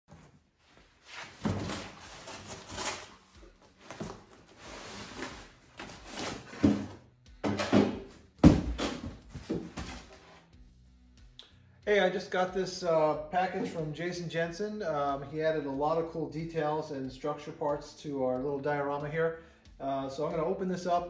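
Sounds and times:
cardboard box rustling and scraping: 1.2s - 8.0s
box bumping on metal table: 6.4s - 10.0s.

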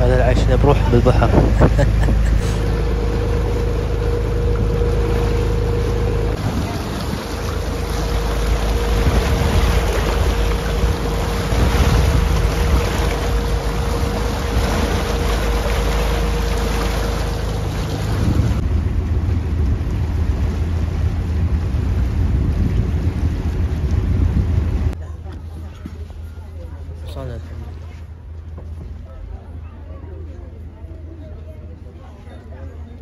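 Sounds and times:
wind on microphone: 0.0s - 3.6s, 4.3s - 16.9s, 17.6s - 25.0s
boat engine low hum: 0.0s - 33.0s
churning wake rushing: 0.0s - 33.0s.

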